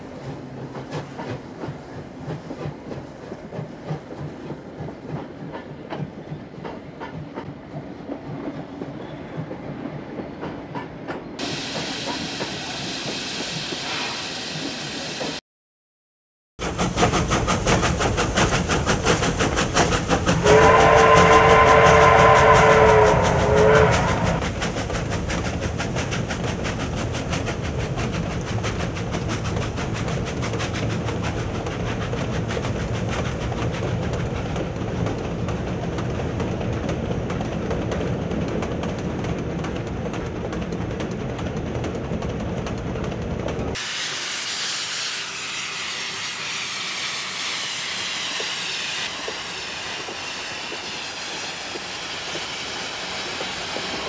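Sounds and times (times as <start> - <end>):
steam train rumble and hiss: 0.0 - 10.1, 11.4 - 15.4, 16.6 - 54.0
train rattling on rails: 0.0 - 15.4, 16.6 - 54.0
steam whistle: 20.4 - 24.4.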